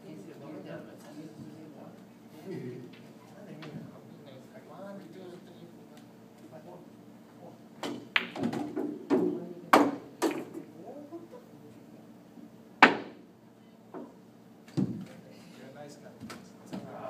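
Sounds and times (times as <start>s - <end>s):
balls knocking off cushions: 7.8s - 10.7s, 14.7s - 15.1s
cue striking ball: 7.8s - 10.7s, 12.8s - 13.3s
pool balls clacking: 7.8s - 10.7s, 12.8s - 13.2s.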